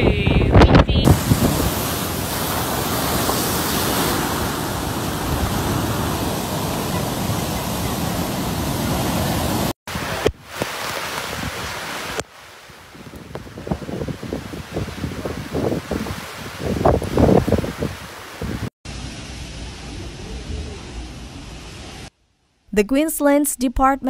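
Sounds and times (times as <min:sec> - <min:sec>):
wind buffeting microphone: 0:00.0 - 0:10.2, 0:12.9 - 0:18.7
gusting wind: 0:00.0 - 0:22.1
heavy surf crashing on beach: 0:00.9 - 0:21.1.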